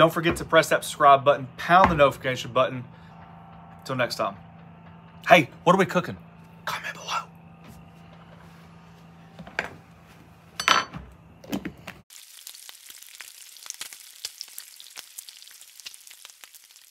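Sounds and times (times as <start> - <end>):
bacon sizzling on a griddle: 12.1 - 16.9.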